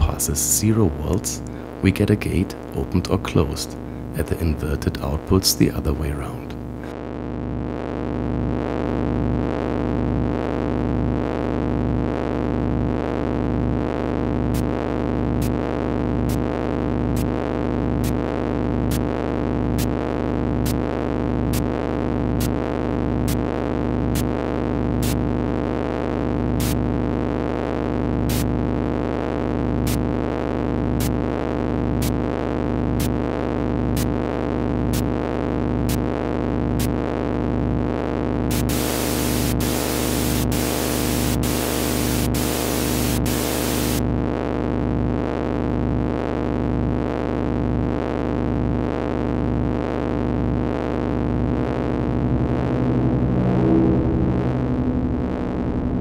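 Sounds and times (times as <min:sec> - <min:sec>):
noise hiss: 0:38.5 - 0:44.0
pulsing synthesizer drone: 0:38.5 - 0:44.0, 0:50.5 - 0:56.0.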